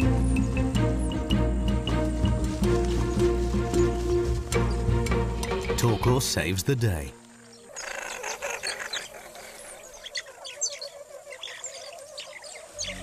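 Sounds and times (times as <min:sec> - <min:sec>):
small animals chirping: 0:07.0 - 0:13.0.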